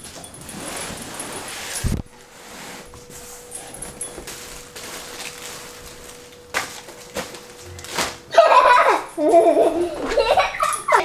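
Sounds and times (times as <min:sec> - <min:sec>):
paper and plastic rustling: 0:00.0 - 0:08.3.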